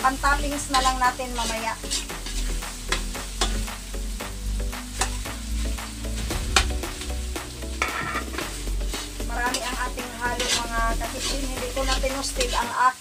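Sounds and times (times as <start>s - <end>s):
ladle scraping meat in a wok: 0.6s - 4.0s, 7.6s - 12.6s.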